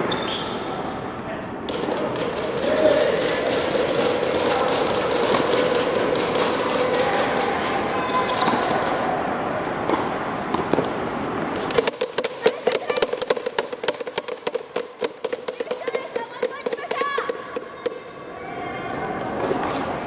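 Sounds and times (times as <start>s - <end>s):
steady background din: 0.0s - 20.0s
tennis ball bouncing on hard court: 9.8s - 18.0s
quick irregular taps: 11.6s - 18.0s.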